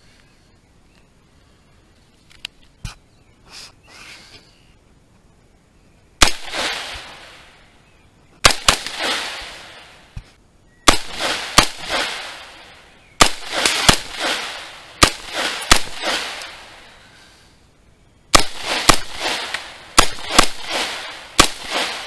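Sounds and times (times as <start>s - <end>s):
rifle gunshots with echo: 6.2s - 7.6s, 8.4s - 10.1s, 10.9s - 16.9s, 18.3s - 22.0s.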